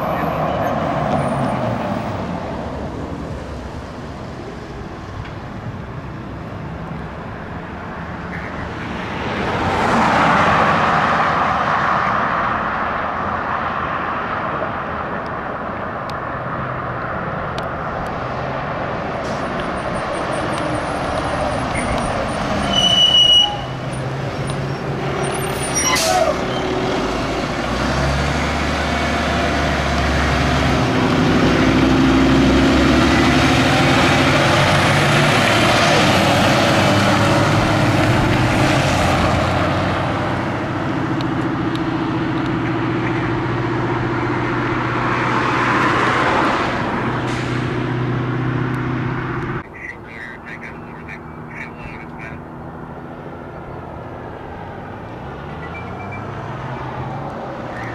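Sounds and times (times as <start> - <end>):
diesel engine accelerating: 15.3 - 57.9
air brakes hissing: 25.7 - 26.4, 47.2 - 47.7.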